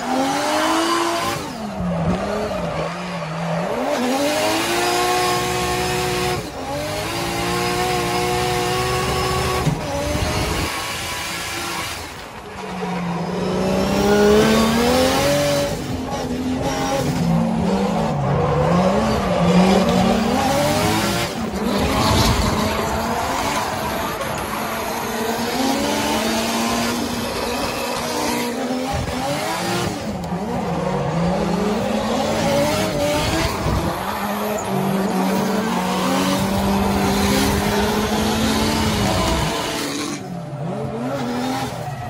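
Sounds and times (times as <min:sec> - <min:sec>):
car engine revving: 0:00.0 - 0:42.0
tyres squealing and sliding: 0:16.8 - 0:28.7, 0:29.6 - 0:42.0.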